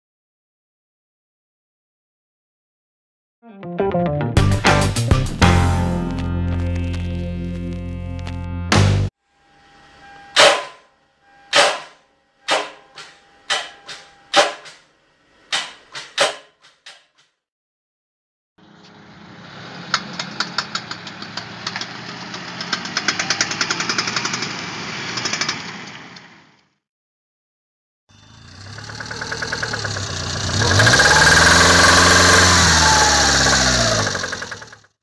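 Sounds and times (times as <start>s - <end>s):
road noise: 18.6s - 26.7s, 28.1s - 34.8s
car engine clunking: 19.9s - 25.8s, 28.6s - 34.8s.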